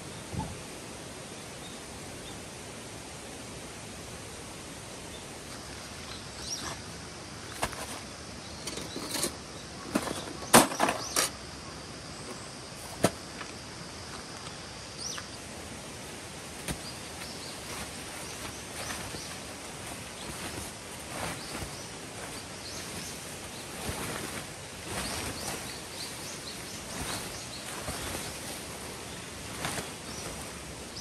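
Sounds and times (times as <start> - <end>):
knocks and clatters: 8.6 - 11.4.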